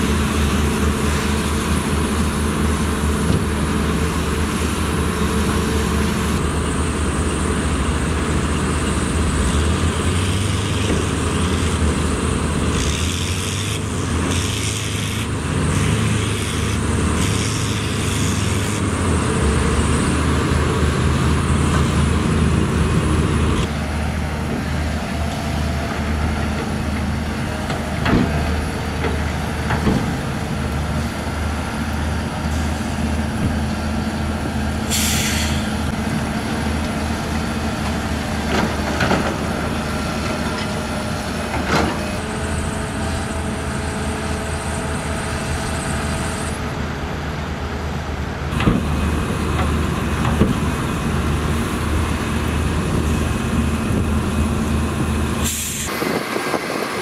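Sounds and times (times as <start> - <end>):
bulldozer diesel engine: 0.0 - 57.0
excavator working: 0.0 - 57.0
short burst of hiss: 34.9 - 35.7, 55.4 - 56.2.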